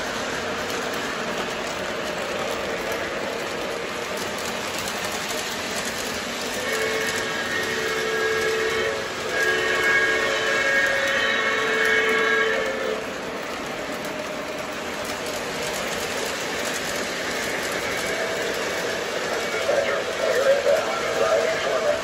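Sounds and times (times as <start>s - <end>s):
model trains rolling on track: 0.0s - 22.0s
train chime whistle blasts: 6.7s - 12.9s.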